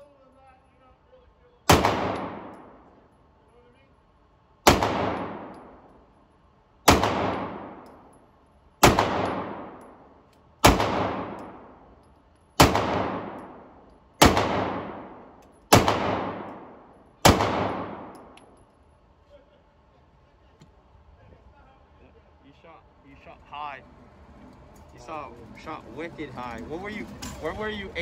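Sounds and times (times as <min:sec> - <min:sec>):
pistol shots echoing indoors: 0:01.7 - 0:03.1, 0:04.6 - 0:06.2, 0:06.8 - 0:08.2, 0:08.8 - 0:18.6.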